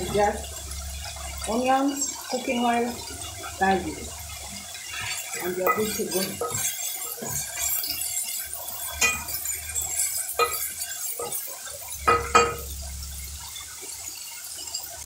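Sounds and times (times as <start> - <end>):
vegetables frying in oil: 0.0 - 15.0
spoon scraping a metal pot: 4.2 - 13.7.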